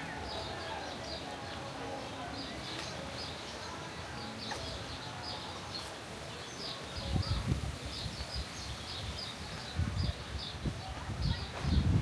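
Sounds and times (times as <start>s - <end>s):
small birds chirping: 0.0s - 12.0s
wind buffeting microphone: 6.9s - 12.0s.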